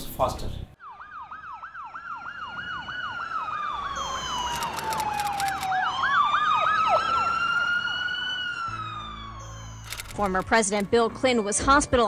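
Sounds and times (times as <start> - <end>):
siren fast yelp: 0.8 - 9.9
siren slow wail: 0.8 - 10.1.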